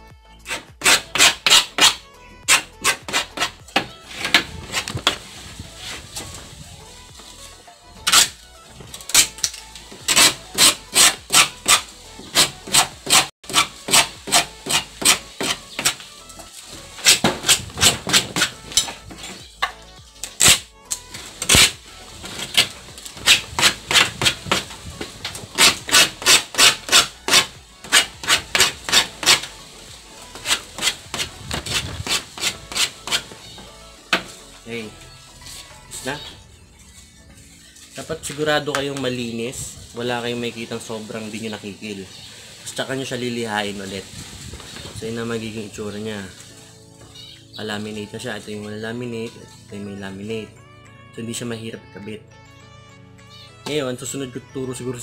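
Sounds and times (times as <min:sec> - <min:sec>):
hand file rasping on laminate: 0:00.5 - 0:03.6, 0:10.1 - 0:16.0, 0:22.5 - 0:24.7, 0:25.5 - 0:29.5, 0:30.4 - 0:33.3.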